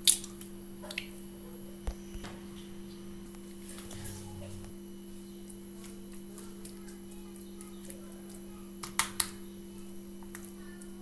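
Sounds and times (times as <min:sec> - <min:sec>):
steady low hum: 0:00.2 - 0:08.6.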